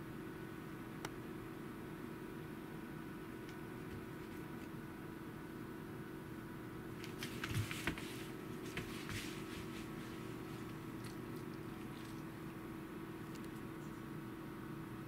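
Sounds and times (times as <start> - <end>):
steady hum: 0.0 - 15.0
paws scuffling on a foam mat: 7.0 - 12.5.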